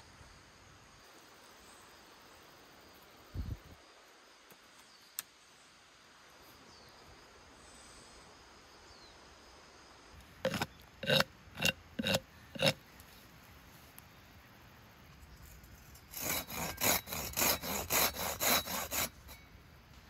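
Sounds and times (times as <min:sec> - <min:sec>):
hand saw cutting wood: 0:10.5 - 0:12.8, 0:16.1 - 0:19.4.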